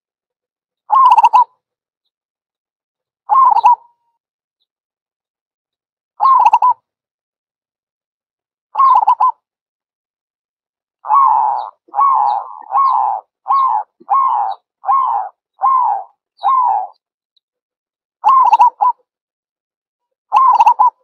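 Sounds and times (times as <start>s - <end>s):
dove cooing: 0.9s - 1.5s, 3.3s - 3.8s, 6.2s - 6.8s, 8.8s - 9.4s, 11.0s - 17.0s, 18.2s - 19.0s, 20.3s - 21.0s.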